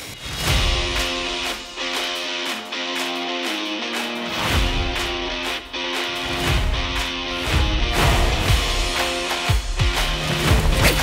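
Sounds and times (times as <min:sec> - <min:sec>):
guitar playing sustained chords: 0:00.5 - 0:10.2.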